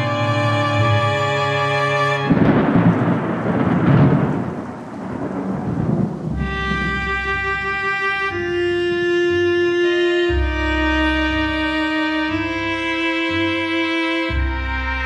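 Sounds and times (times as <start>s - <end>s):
slow string music over drone: 0.0s - 3.6s, 6.4s - 15.0s
deep thunder-like rumble: 2.2s - 8.4s.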